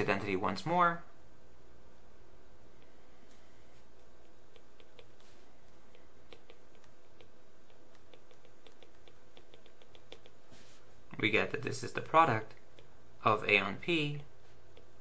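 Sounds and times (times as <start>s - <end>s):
stylus tapping on tablet screen: 4.0s - 10.4s.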